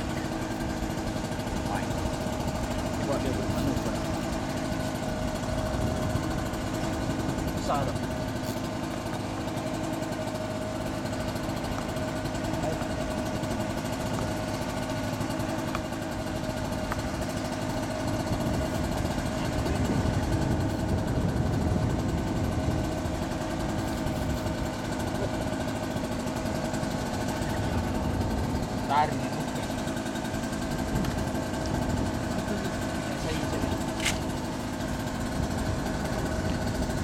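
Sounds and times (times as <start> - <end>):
engine humming steadily: 0.0 - 37.0.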